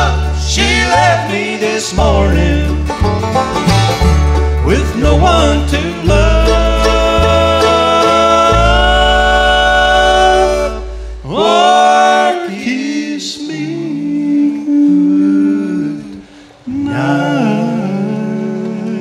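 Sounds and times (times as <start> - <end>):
harmony voices singing: 0.0 - 3.2, 4.6 - 19.0
bluegrass band chord: 0.0 - 12.2.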